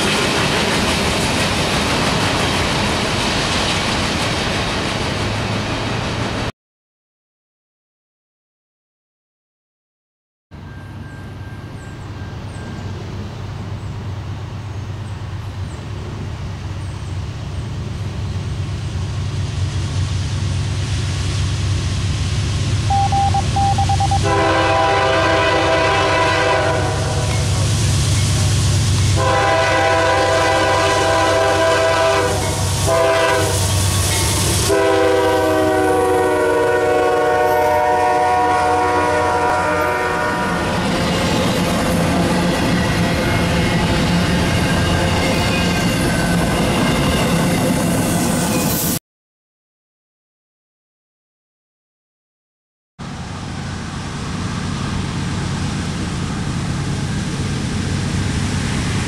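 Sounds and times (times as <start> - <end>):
diesel locomotive engine rumble: 0.0 - 6.5, 10.6 - 48.9, 53.0 - 59.0
locomotive air horn blasts: 22.9 - 27.5, 29.2 - 33.7, 34.6 - 40.7.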